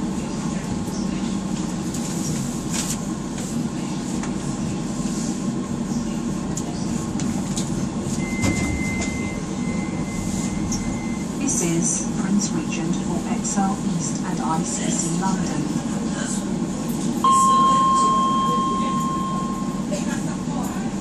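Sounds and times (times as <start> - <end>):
train running hum and rumble: 0.0 - 21.0
thin high tone: 17.2 - 20.0.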